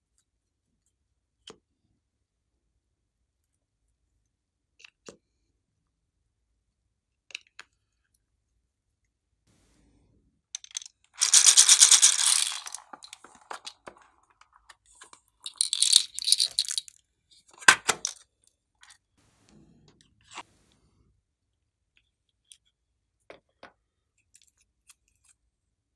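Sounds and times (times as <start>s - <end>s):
plastic beads rattling: 10.6s - 14.5s, 15.4s - 16.9s, 17.8s - 18.2s.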